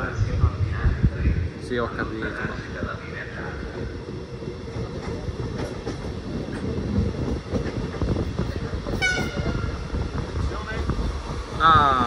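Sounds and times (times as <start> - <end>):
train running gear rumble: 0.0 - 12.0.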